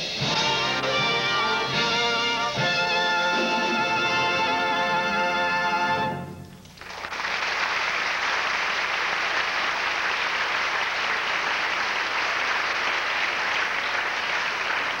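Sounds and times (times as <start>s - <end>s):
audience applauding: 6.5s - 15.0s.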